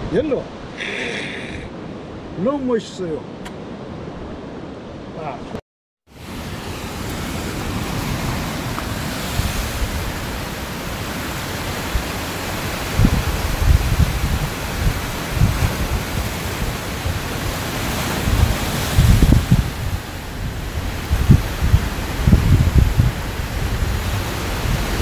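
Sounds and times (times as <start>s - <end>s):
surf on rocky shore: 0.0s - 25.0s
wind: 0.0s - 25.0s
wind buffeting microphone: 7.6s - 25.0s.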